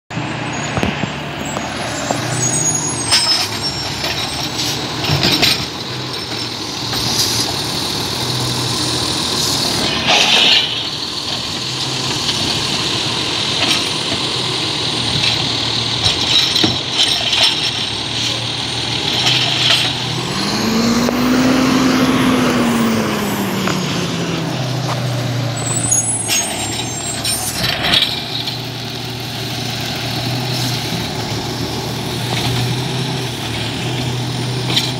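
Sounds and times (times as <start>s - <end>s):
diesel truck engine idling: 0.2s - 10.1s, 17.7s - 27.2s
garbage carts clanking: 0.8s - 21.1s, 22.1s - 34.9s.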